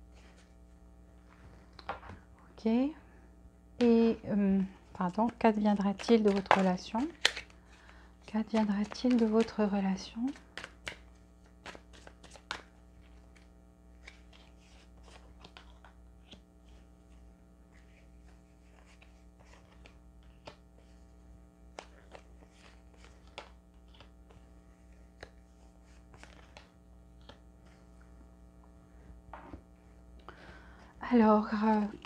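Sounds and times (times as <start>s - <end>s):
steady low hum: 0.0s - 32.0s
cards flicking and tapping: 5.1s - 9.6s, 10.2s - 16.8s, 21.7s - 27.4s.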